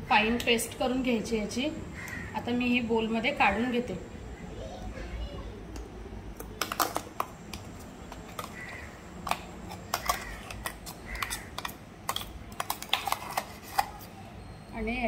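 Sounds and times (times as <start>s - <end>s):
spoon scraping metal jar: 8.1s - 14.2s.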